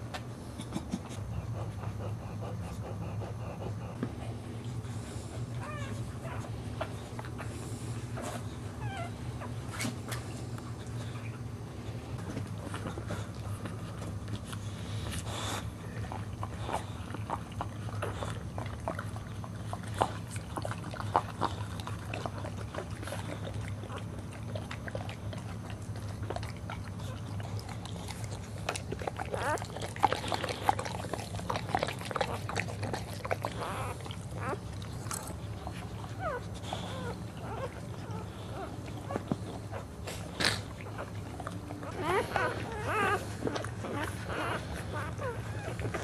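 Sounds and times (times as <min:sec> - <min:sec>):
dog licking wetly: 0:15.6 - 0:36.1.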